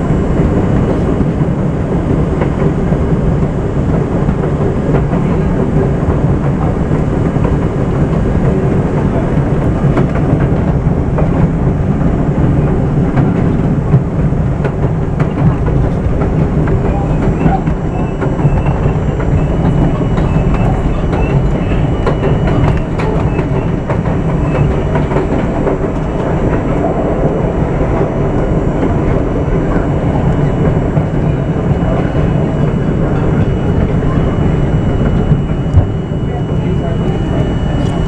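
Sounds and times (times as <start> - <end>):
high whine: 0.0 - 38.0
train rumble: 0.0 - 38.0
wheels clattering over rail joints: 4.6 - 27.6.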